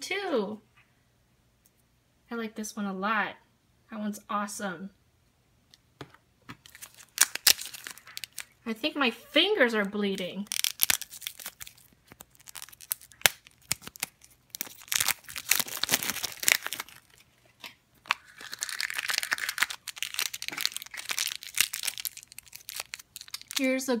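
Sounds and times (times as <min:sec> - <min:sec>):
plastic packaging tearing: 0:06.6 - 0:08.6, 0:10.1 - 0:17.4, 0:18.0 - 0:23.9
foil bag crinkling: 0:06.6 - 0:08.7, 0:10.1 - 0:23.9.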